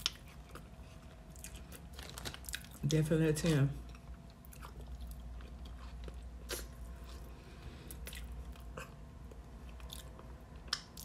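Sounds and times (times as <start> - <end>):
faint low hum: 0.0 - 11.0
quiet chewing: 3.8 - 11.0
wet mouth clicks and smacks: 10.6 - 11.0.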